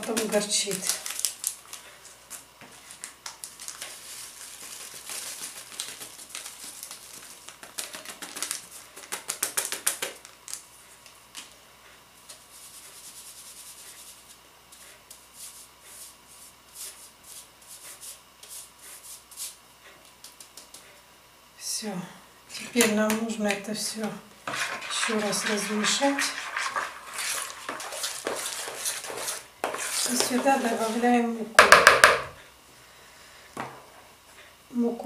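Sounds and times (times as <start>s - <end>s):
sieve clicking and rustling: 24.5s - 30.8s.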